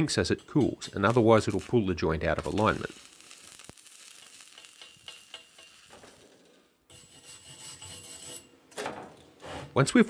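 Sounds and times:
welding arc crackling and popping: 0:00.6 - 0:06.7
wire brush rasping on metal: 0:06.9 - 0:08.5.

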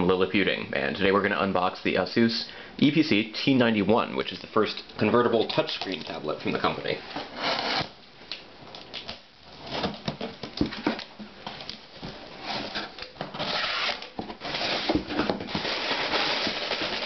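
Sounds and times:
packing tape being slit: 0:07.4 - 0:09.2, 0:12.6 - 0:17.0
cardboard rustling: 0:09.5 - 0:17.0.

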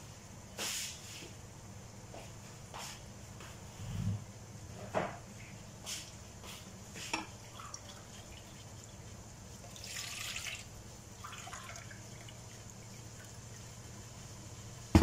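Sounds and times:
water bubbling in a pan: 0:07.1 - 0:14.9.

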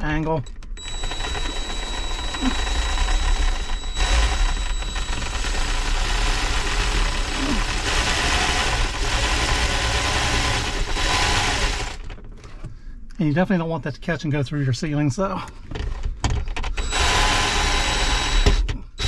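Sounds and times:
cordless drill running: 0:00.8 - 0:12.1, 0:16.8 - 0:19.0.

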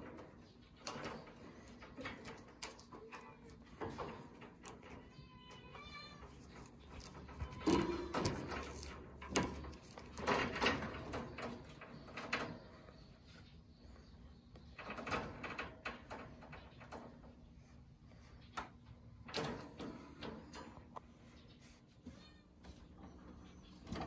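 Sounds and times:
wire cage rattling: 0:00.0 - 0:13.1, 0:14.7 - 0:17.4.

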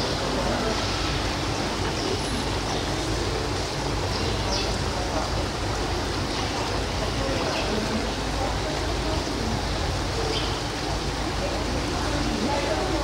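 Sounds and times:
indistinct voices murmuring: 0:00.0 - 0:13.0.

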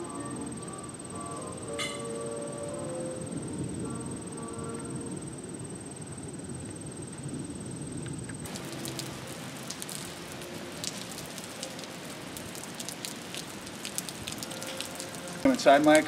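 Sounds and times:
high-pitched whine: 0:00.0 - 0:12.4
rain on wet pavement: 0:08.0 - 0:16.0.

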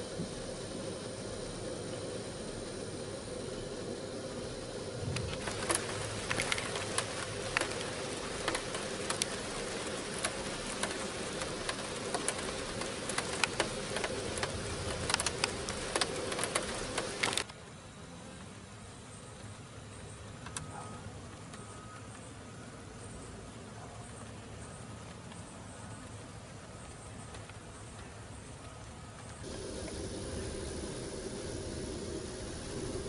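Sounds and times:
bees buzzing: 0:04.5 - 0:17.4, 0:29.4 - 0:33.0
sharp ticks and taps: 0:05.1 - 0:17.5, 0:26.8 - 0:29.4.

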